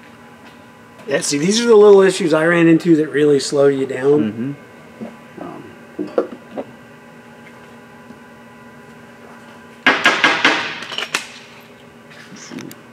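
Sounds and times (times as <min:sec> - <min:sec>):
hard clattering knocks: 0:09.8 - 0:10.9.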